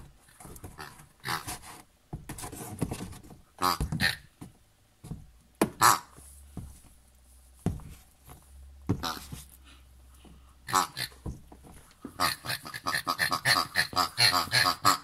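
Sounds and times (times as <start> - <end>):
person imitating pig oinks: 12.2 - 15.0.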